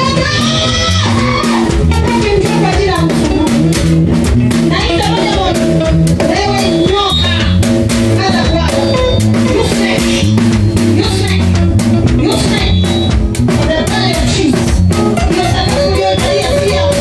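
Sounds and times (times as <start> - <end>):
bass guitar: 0.0 - 17.0
drum kit beat: 0.0 - 17.0
guitar: 0.0 - 17.0
person singing: 13.6 - 17.0.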